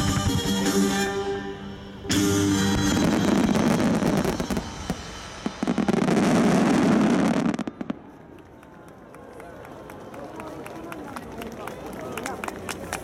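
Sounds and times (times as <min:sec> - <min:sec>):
fireworks bursting and crackling: 0:02.1 - 0:08.4.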